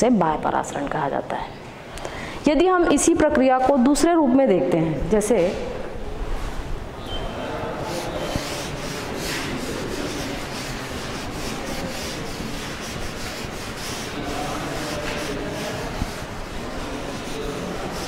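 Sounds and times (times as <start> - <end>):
duster rubbing on blackboard: 7.6 - 18.0.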